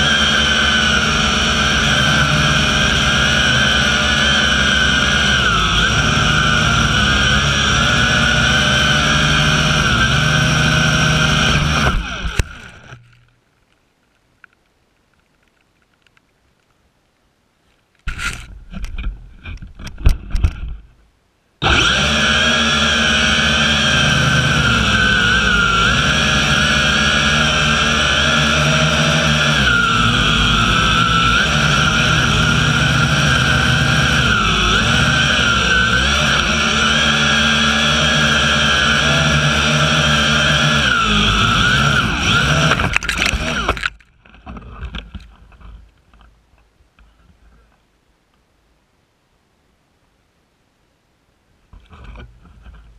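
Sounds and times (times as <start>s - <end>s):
drone motors whining: 0.0s - 13.1s, 21.6s - 44.0s
drone clattering against tree: 18.0s - 21.0s.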